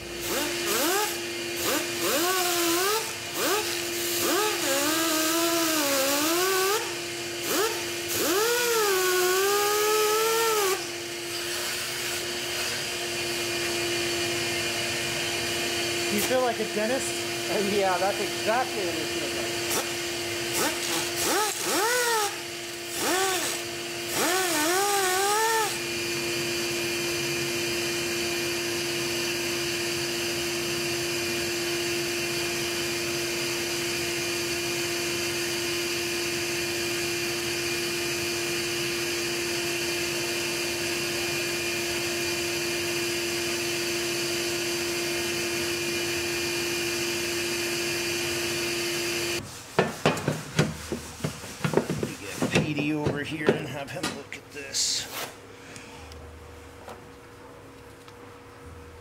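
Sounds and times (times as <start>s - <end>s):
rotary grinding tool whining: 0.0s - 49.4s.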